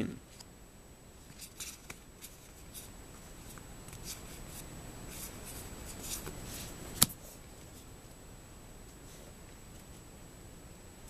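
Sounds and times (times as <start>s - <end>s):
paper cards swishing: 1.3s - 7.4s.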